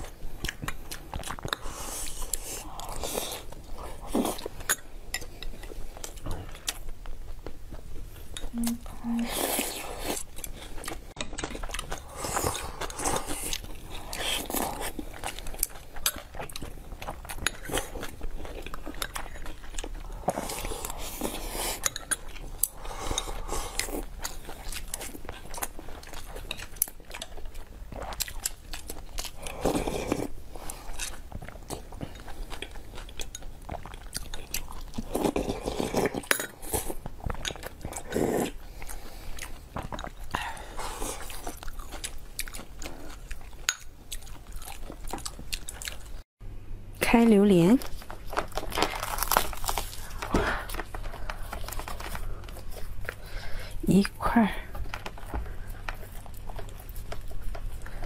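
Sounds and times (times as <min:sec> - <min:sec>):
chewing: 0:00.0 - 0:46.2, 0:47.8 - 0:58.0.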